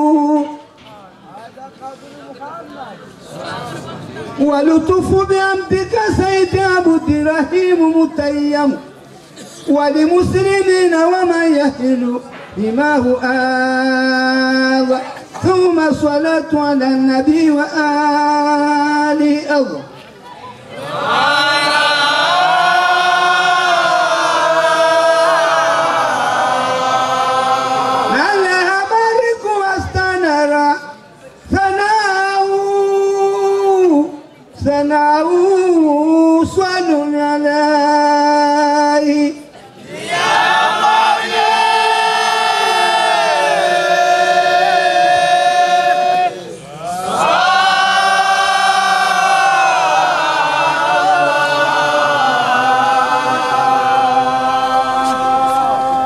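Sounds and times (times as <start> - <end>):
group chanting in unison: 20.7 - 28.4, 39.8 - 56.0
single voice chanting: 40.0 - 56.0.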